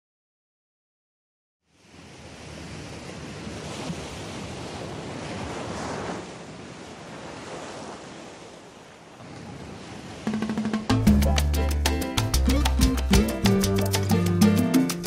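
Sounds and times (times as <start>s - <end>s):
wind: 1.6s - 12.2s
waves breaking on rocks: 1.8s - 10.9s.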